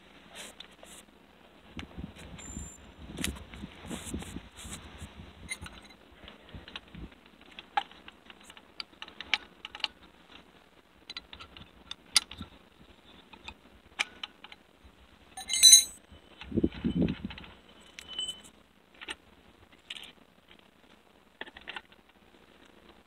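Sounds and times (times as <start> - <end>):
ringing metal clink: 15.4 - 16.0, 17.8 - 18.5
small metallic clicks and clinks: 15.4 - 19.2.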